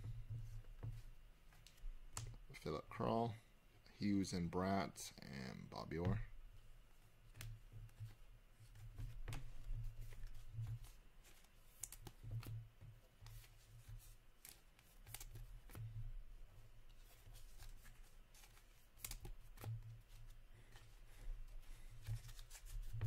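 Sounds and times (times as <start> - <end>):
cards shuffled and flipped: 7.3 - 12.5, 13.2 - 15.9, 17.0 - 20.9, 21.9 - 23.0.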